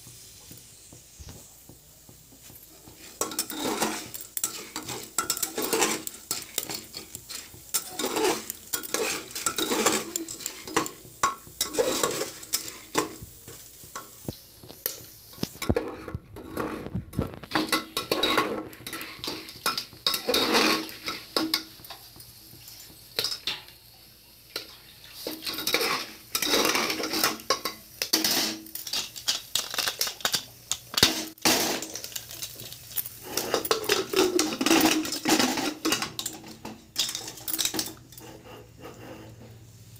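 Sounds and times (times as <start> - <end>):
dry kernels rattling: 2.6 - 15.7, 28.2 - 38.1
metal ladle scraping pot: 2.8 - 13.2, 14.8 - 21.9, 25.2 - 30.1, 31.0 - 39.6.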